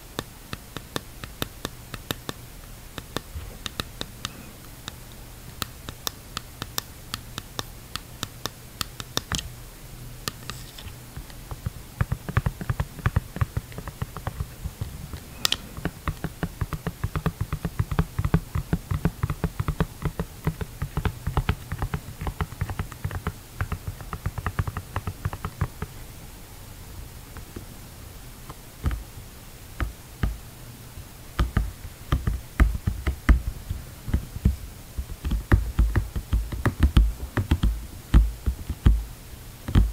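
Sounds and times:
fingernails tapping on plastic mask: 0:00.2 - 0:09.5, 0:10.2 - 0:25.9, 0:28.5 - 0:29.1, 0:29.8 - 0:30.4, 0:31.4 - 0:39.9.

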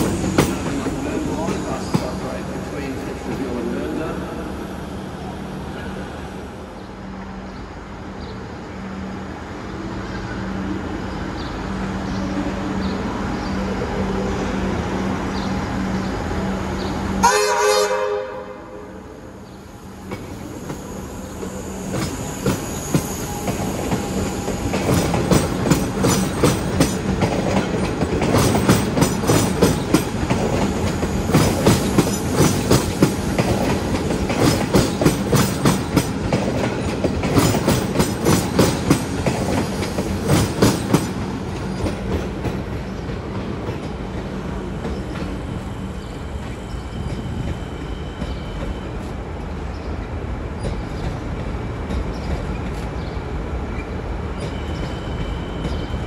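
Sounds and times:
train wheels clacking over track: 0:00.0 - 0:04.1, 0:20.0 - 0:49.6, 0:50.5 - 0:53.2
electric train hum: 0:00.0 - 0:56.0
train horn: 0:17.2 - 0:19.1.

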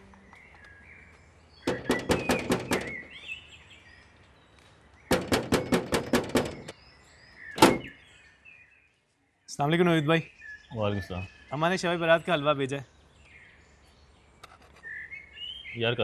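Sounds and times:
knocking on metal door: 0:01.6 - 0:03.1, 0:05.1 - 0:06.7, 0:07.6 - 0:07.9.

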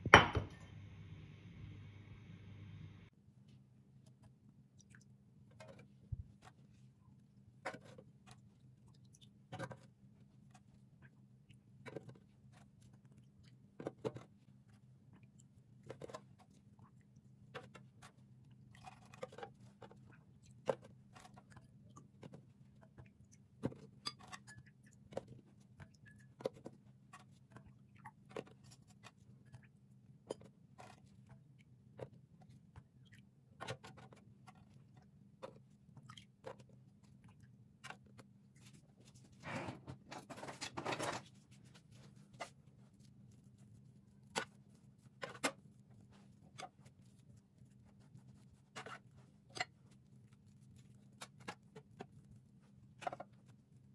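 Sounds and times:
biscuits tapping in metal pan: 0:00.0 - 0:00.6
faint low hum: 0:00.0 - 0:23.8.

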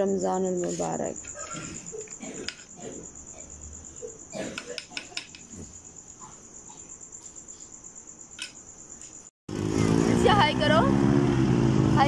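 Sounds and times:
cricket chirping trill: 0:00.0 - 0:12.0.

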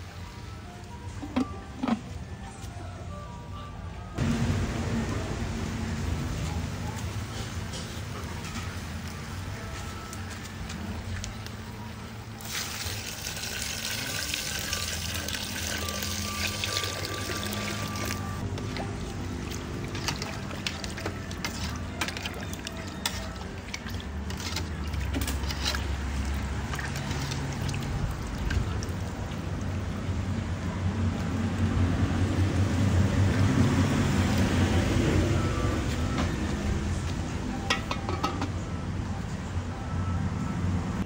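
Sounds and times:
liquid sloshing: 0:19.4 - 0:29.5
metal ladle scraping a pot: 0:20.0 - 0:27.6.

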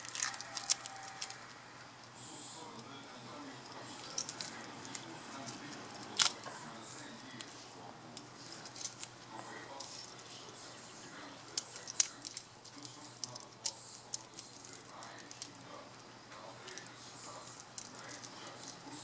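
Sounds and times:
metal watch bracelet clinking: 0:03.6 - 0:06.4.

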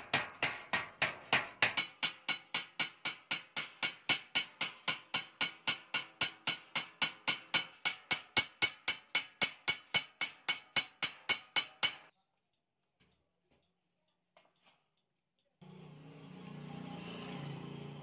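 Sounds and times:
hammer striking sheet-metal rim: 0:00.0 - 0:12.1.

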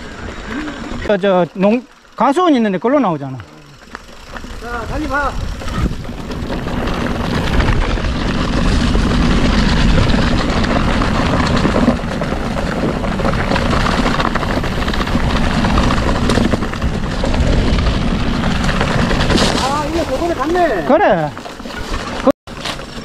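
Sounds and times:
bike tyres rattling over dirt: 0:00.0 - 0:23.0
wind buffeting microphone: 0:04.2 - 0:21.4.

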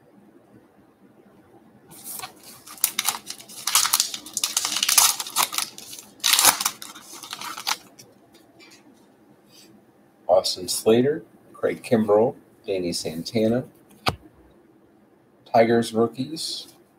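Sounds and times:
wrapper tearing and crinkling: 0:02.0 - 0:08.0.

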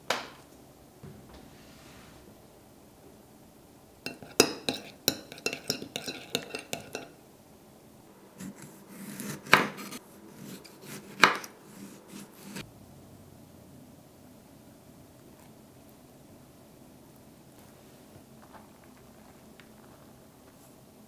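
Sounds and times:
knife slicing tomato: 0:04.1 - 0:07.1, 0:08.4 - 0:12.6
metal spoon clinking ceramic dish: 0:04.1 - 0:07.2.

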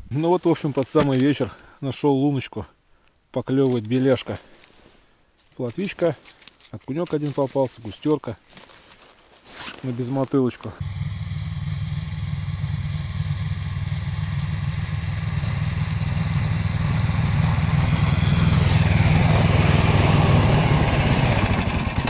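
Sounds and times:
small engine running: 0:10.8 - 0:22.0.

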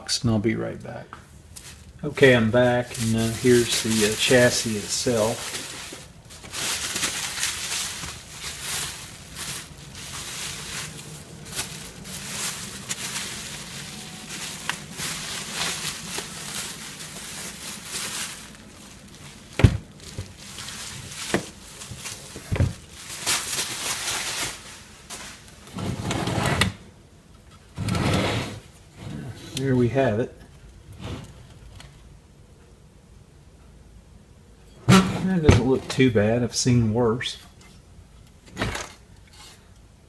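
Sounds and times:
bubble wrap crinkling: 0:01.5 - 0:25.7.

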